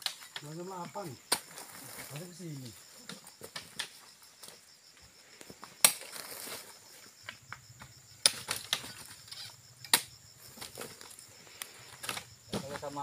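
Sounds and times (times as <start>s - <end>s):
insects buzzing: 0.0s - 13.0s
fruit bunches knocking and clinking: 12.0s - 13.0s.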